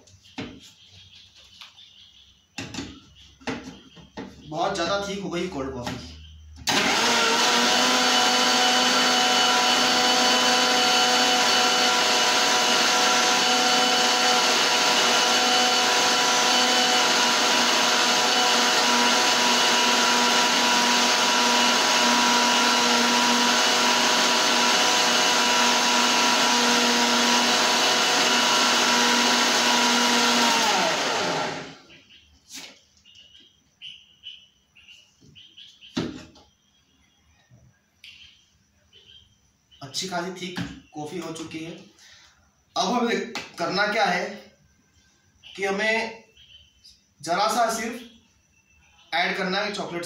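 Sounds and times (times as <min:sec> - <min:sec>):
blender running: 0:06.7 - 0:31.9
blender spinning down whine: 0:06.7 - 0:31.9.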